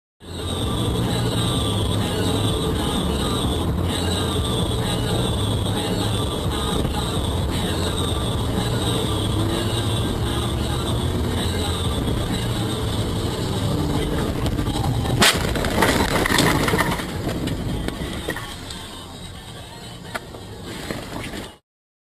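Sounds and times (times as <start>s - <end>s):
car road and engine noise: 0.2s - 21.6s
rushing scraping noise: 6.6s - 18.9s
loud collision bang: 14.4s - 17.5s.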